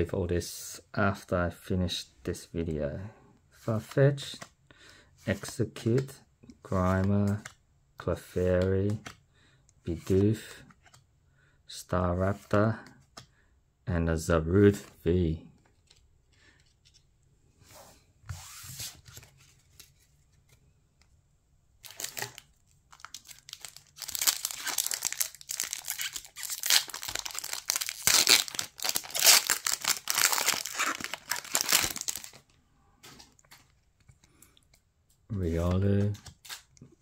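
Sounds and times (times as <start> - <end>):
faint card handling: 5.3 - 7.6, 8.2 - 9.2, 14.7 - 17.2, 18.0 - 21.2, 21.9 - 37.0
foil wrapper tearing and crinkling: 21.8 - 32.4.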